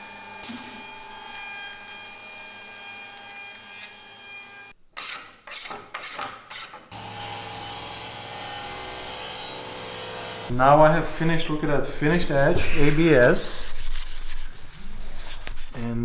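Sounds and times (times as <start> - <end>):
rasping strokes: 12.5 - 16.0.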